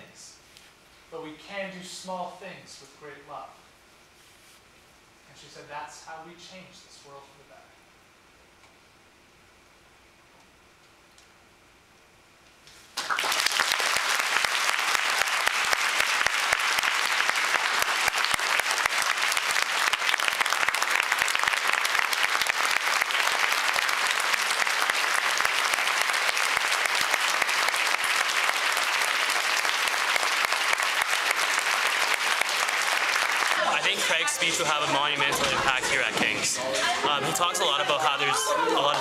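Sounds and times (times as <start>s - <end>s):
large audience applauding: 12.9s - 36.5s, 37.3s - 39.0s.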